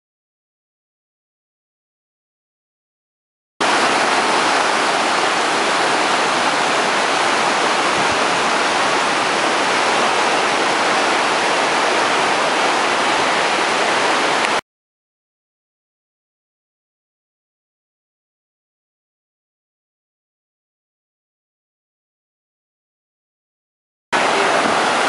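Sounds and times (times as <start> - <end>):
waterfall rushing over rock: 3.6 - 14.6, 24.2 - 25.0.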